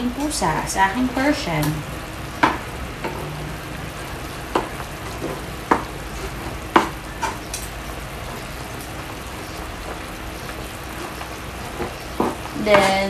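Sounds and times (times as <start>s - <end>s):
pot boiling hiss: 0.0s - 13.0s.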